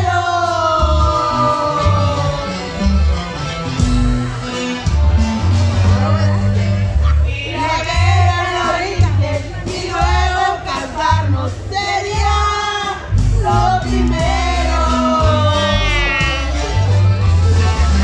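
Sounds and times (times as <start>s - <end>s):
women singing into a microphone: 0.0s - 2.6s, 7.3s - 16.2s
loud music with heavy bass: 0.0s - 18.0s.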